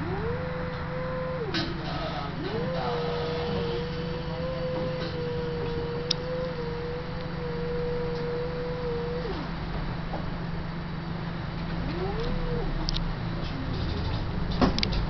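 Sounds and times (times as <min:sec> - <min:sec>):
low hum: 0:00.0 - 0:14.9
electric drive whine: 0:00.0 - 0:15.0
sharp click: 0:14.6 - 0:15.0.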